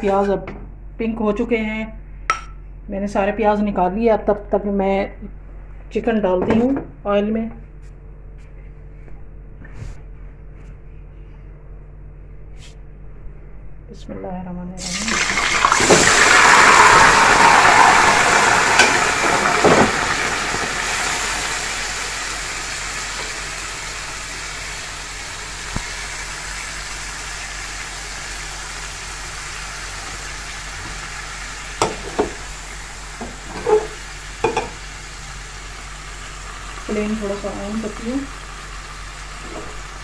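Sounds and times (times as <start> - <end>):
chicken sizzling in hot oil: 14.8 - 40.0.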